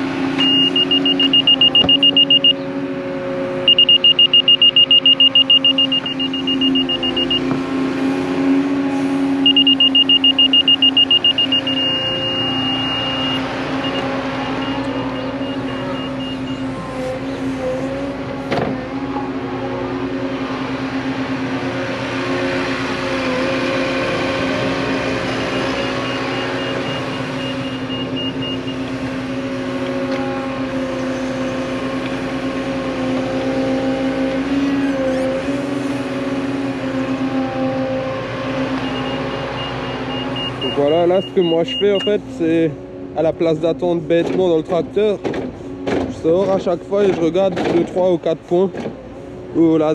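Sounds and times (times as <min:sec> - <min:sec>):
excavator diesel engine: 0:00.0 - 0:49.9
laser receiver beeping: 0:00.4 - 0:02.6, 0:03.7 - 0:07.4, 0:09.4 - 0:16.6.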